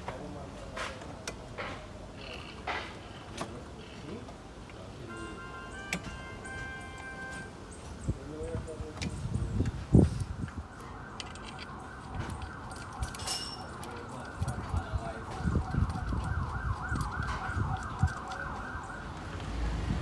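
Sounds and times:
emergency vehicle siren: 5.1s - 7.6s, 10.0s - 20.0s.

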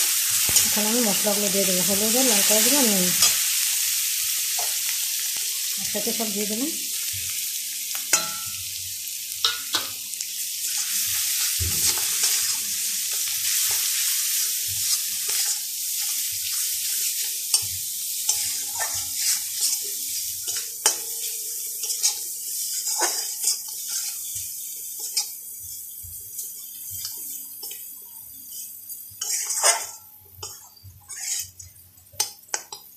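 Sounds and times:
onion paste sizzling in oil: 0.0s - 32.9s
steel spatula scraping pan: 18.3s - 24.4s, 28.5s - 31.8s.

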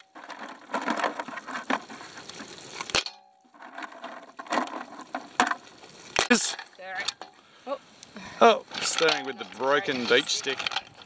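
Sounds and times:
shells clattering in metal pot: 2.8s - 7.4s, 8.7s - 11.0s.

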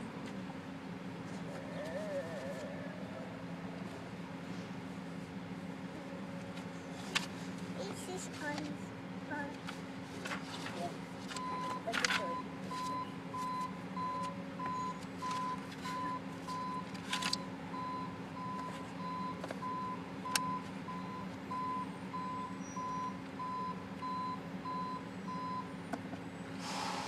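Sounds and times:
low engine drone: 0.0s - 27.0s
backup alarm beeping: 11.4s - 25.7s.

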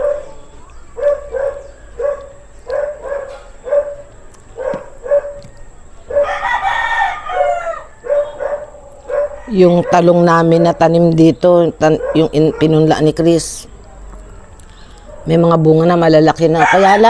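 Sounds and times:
dog barking: 0.0s - 5.5s, 6.1s - 6.4s, 8.0s - 10.3s, 11.8s - 13.0s, 15.1s - 15.4s
rooster crowing: 4.9s - 10.4s, 16.4s - 17.0s.

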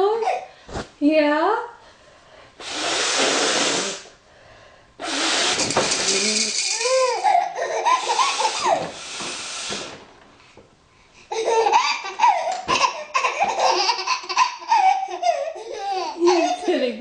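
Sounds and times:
loud nose blow: 2.6s - 4.2s, 5.0s - 6.9s, 7.9s - 10.0s
baby belly laughing: 5.6s - 8.9s, 11.3s - 16.9s.

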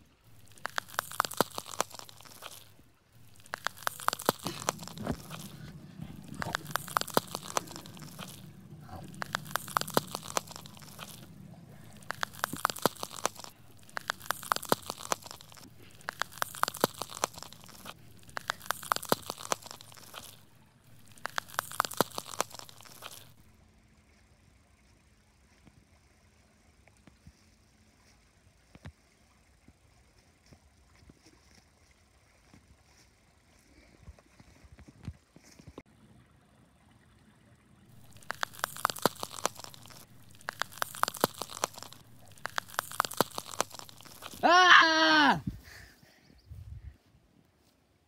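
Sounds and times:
rapid crunching crackles: 0.0s - 23.5s, 37.9s - 46.2s.

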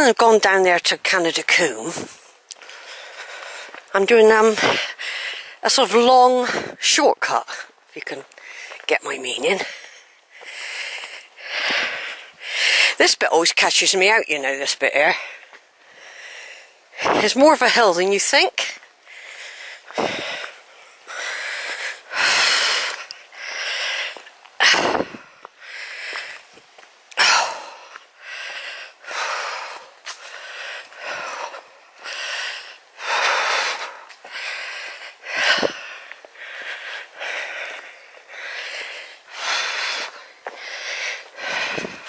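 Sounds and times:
person breathing hard: 2.6s - 3.9s, 4.6s - 5.6s, 8.4s - 8.8s, 9.6s - 13.0s, 15.2s - 17.0s, 19.0s - 26.5s, 27.2s - 42.0s.

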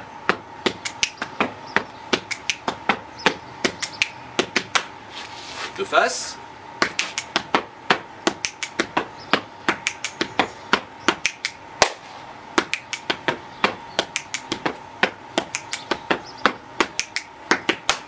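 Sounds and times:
hand claps: 0.7s - 1.4s, 2.1s - 3.0s, 3.6s - 4.9s, 6.8s - 7.6s, 8.3s - 9.1s, 9.7s - 12.0s, 12.6s - 18.0s
hand slaps on chest: 2.1s - 3.0s, 6.8s - 7.6s, 8.3s - 9.1s, 9.7s - 10.3s, 12.6s - 15.9s, 16.8s - 18.0s.

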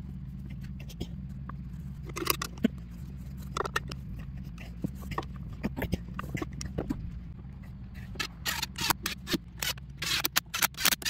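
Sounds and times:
impact driver bursts: 8.2s - 11.0s.

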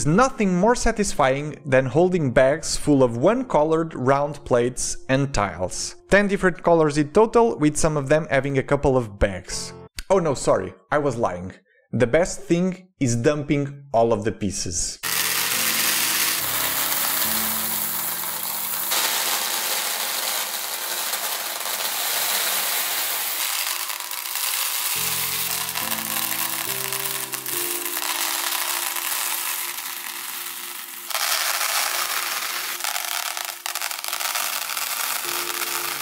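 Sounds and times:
plastic pieces pouring into boxes: 15.0s - 36.0s.

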